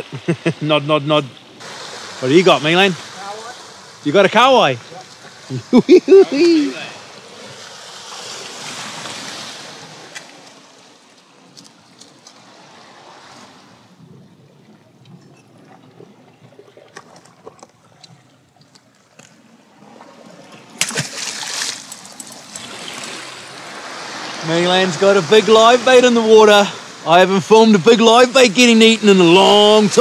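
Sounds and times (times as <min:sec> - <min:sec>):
sea water washing on rocks: 0:01.6 - 0:13.8, 0:19.4 - 0:27.1
fish splashing into water: 0:20.4 - 0:24.2.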